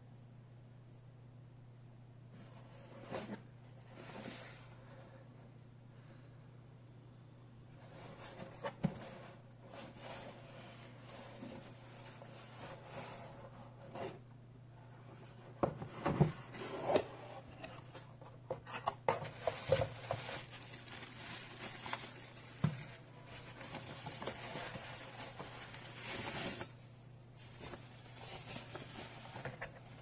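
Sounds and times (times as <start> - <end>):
wrapping sheet rustling: 19.2 - 26.8, 27.4 - 30.0.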